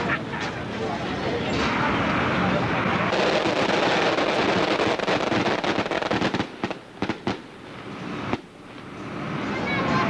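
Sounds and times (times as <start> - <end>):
firecrackers crackling: 1.4 - 10.0
firework bangs: 2.8 - 8.5.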